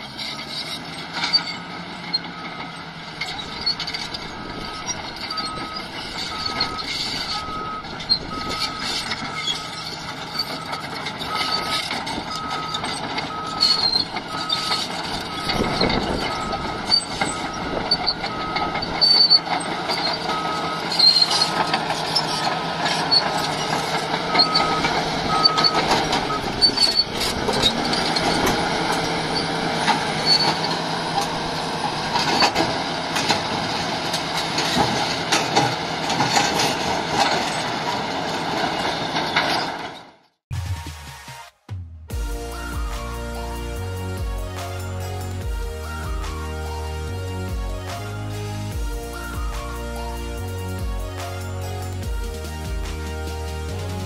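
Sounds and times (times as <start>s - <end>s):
diesel engine under load: 0.0s - 40.6s, 42.1s - 54.0s
clanking tracks: 0.0s - 41.2s, 42.1s - 54.0s
reversing alarm beeps: 2.1s - 30.6s.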